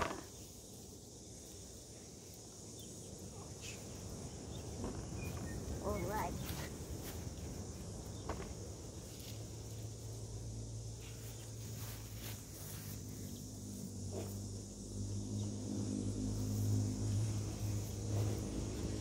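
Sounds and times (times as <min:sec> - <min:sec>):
insects chirring: 0:00.0 - 0:19.0
low engine hum: 0:03.4 - 0:19.0
knocks and rustles of picking fruit: 0:04.7 - 0:09.9.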